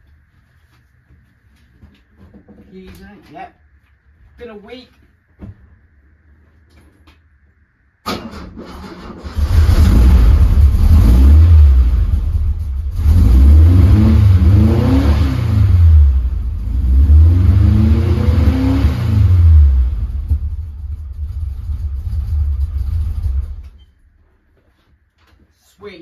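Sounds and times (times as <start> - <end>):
engine running and revving: 9.4 - 23.6.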